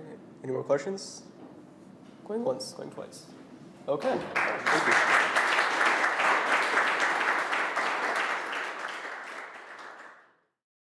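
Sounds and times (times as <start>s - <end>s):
audience applauding: 4.0s - 10.3s.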